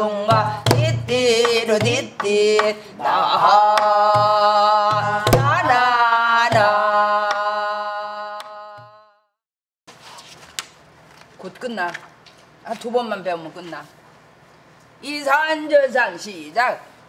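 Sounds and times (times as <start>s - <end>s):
woman singing wordless syllables: 0.0s - 9.1s.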